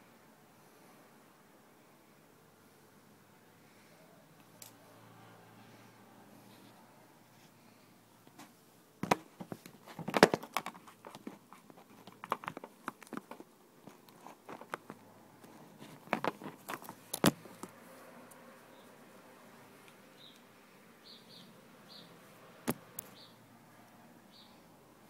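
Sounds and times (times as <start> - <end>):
phone handling noise: 9.0 - 17.7.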